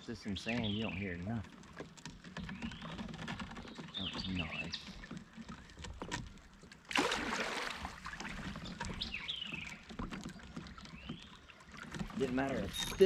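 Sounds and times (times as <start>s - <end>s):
songbird chirping: 0.0s - 1.6s, 2.2s - 6.2s, 8.3s - 13.0s
splash on water: 6.8s - 13.0s.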